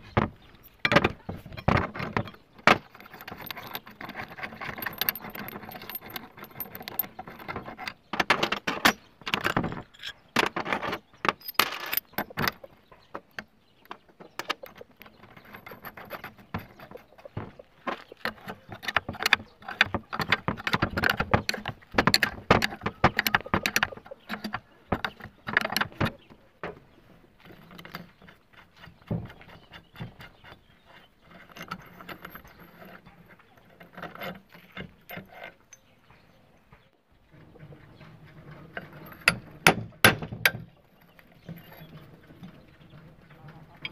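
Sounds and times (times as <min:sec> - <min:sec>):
metal parts clinking: 0:00.6 - 0:12.7.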